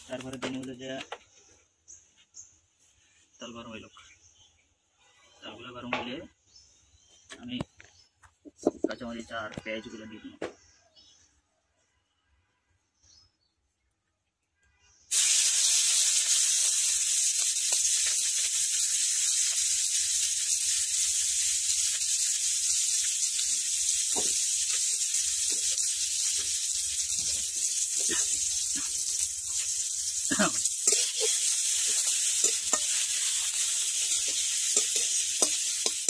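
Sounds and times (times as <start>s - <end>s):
onions sizzling in hot oil: 15.1s - 36.0s.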